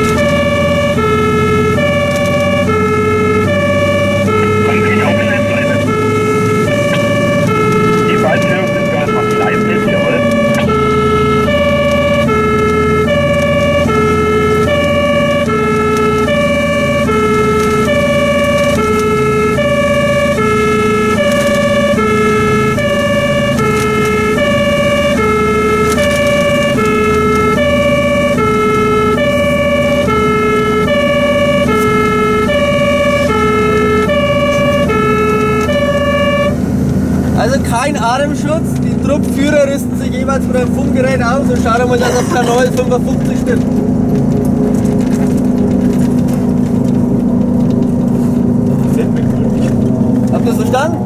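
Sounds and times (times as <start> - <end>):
fire engine two-tone siren: 0.0 - 37.6
truck engine droning: 0.0 - 51.0.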